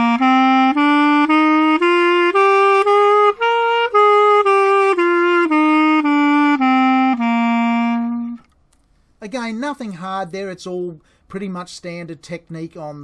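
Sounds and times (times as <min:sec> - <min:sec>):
clarinet playing a scale: 0:00.0 - 0:08.5.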